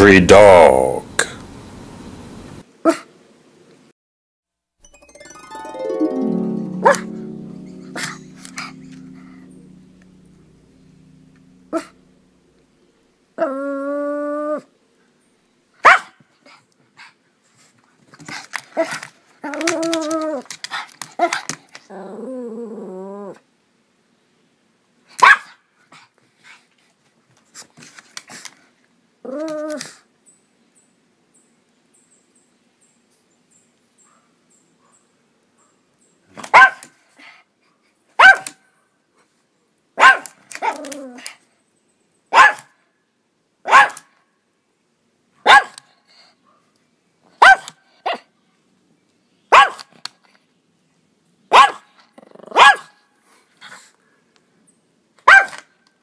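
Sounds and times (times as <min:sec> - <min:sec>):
dog barking: 0:15.8 - 0:16.2, 0:25.2 - 0:25.6, 0:34.0 - 0:35.0, 0:36.5 - 0:36.8, 0:38.2 - 0:38.6, 0:40.0 - 0:40.8, 0:42.3 - 0:42.7, 0:43.7 - 0:44.1, 0:45.4 - 0:45.8, 0:47.4 - 0:48.2, 0:49.5 - 0:49.8, 0:51.5 - 0:51.9, 0:52.6 - 0:53.0, 0:55.3 - 0:55.6.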